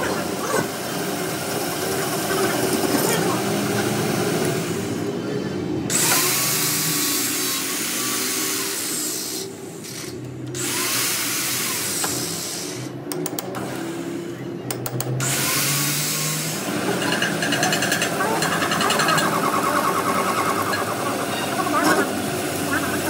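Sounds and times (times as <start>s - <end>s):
metal lathe running: 15.2s - 23.0s.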